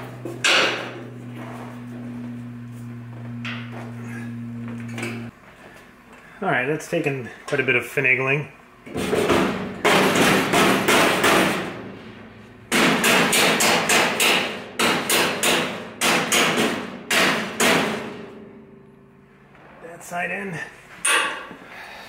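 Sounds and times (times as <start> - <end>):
mallet hammering metal: 0.4 - 1.0, 9.2 - 12.0, 12.7 - 19.3.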